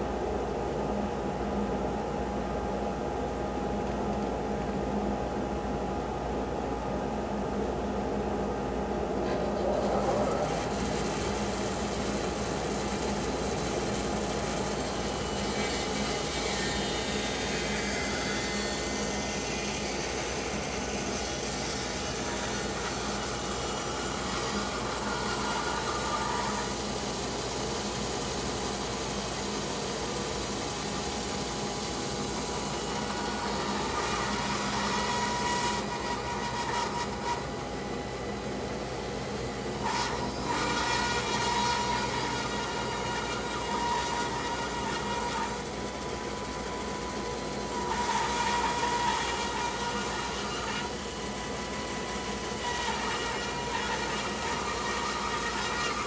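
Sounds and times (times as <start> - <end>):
bandsaw cutting log: 9.3 - 37.6, 39.8 - 56.0.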